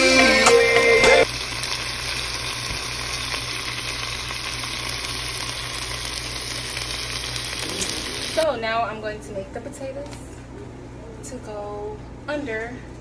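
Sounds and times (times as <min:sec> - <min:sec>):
meat sizzling in a pot: 0:01.2 - 0:08.4.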